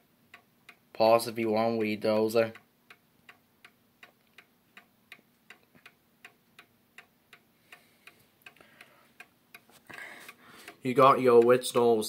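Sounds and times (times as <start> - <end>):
mantle clock ticking: 0.0 - 12.0.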